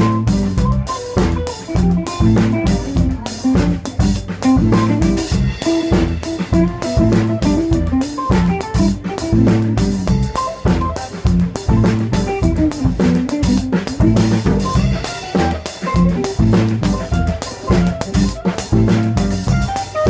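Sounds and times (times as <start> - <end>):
drums and cymbals: 0.0 - 20.0
live band playing: 0.0 - 20.0.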